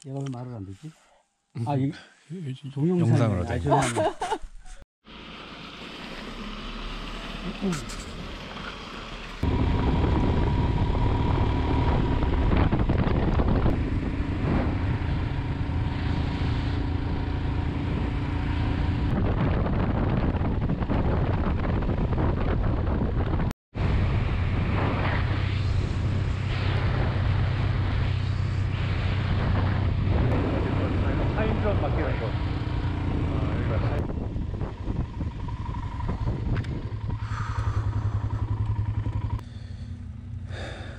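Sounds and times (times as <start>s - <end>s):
motorcycle engine: 5.0s - 40.9s
wind noise on microphone: 9.4s - 31.5s, 33.5s - 38.3s.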